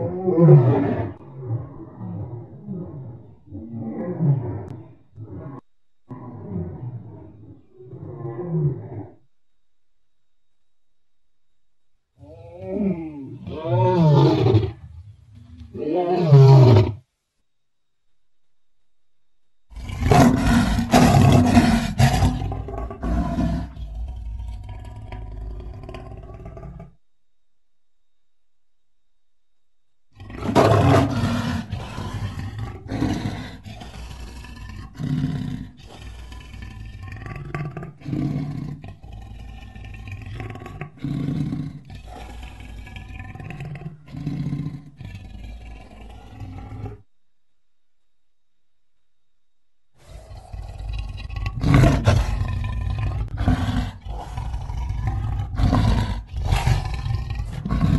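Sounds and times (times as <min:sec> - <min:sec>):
lion roaring: 0:00.0 - 0:09.2, 0:12.2 - 0:17.0, 0:19.7 - 0:27.0, 0:30.1 - 0:47.1, 0:50.0 - 0:57.9.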